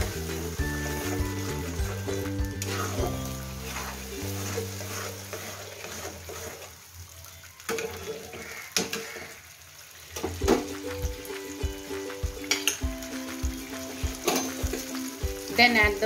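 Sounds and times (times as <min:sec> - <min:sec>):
metal spatula scraping pan: 0:00.0 - 0:06.8
paste sizzling in hot oil: 0:00.0 - 0:16.0.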